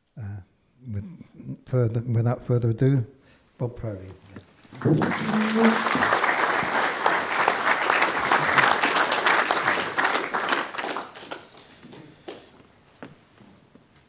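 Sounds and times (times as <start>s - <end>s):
audience applauding: 4.7s - 12.5s.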